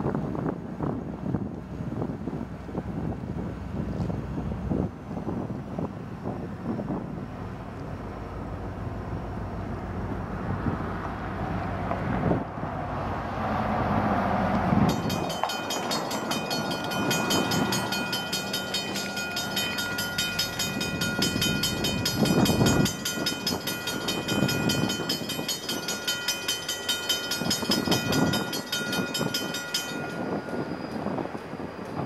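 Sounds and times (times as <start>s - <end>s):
diesel locomotive rumble: 0.0s - 32.0s
railroad bell ringing: 14.8s - 32.0s.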